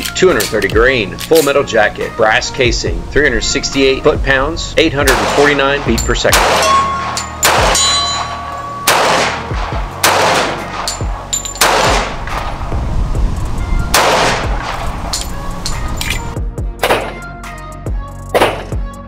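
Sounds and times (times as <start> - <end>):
pistol shots: 5.1 - 12.4, 13.9 - 14.9, 16.8 - 17.2, 18.4 - 18.8.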